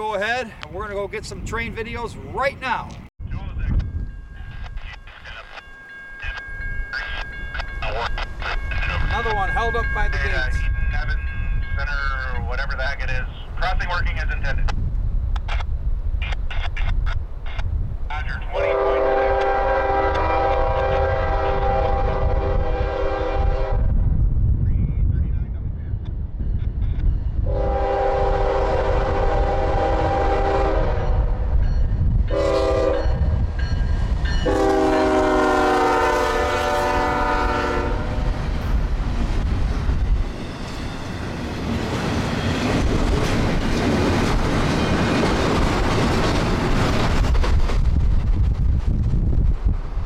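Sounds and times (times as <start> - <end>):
train wheels rumbling on rails: 16.3 - 50.0
locomotive air horn blasts: 18.6 - 23.8, 27.4 - 31.4, 32.3 - 33.3, 34.4 - 38.3.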